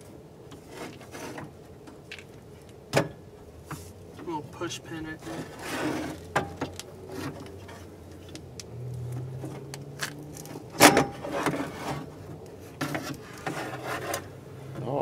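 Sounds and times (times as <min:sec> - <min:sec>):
metal rails clinking and scraping: 0:05.0 - 0:14.3.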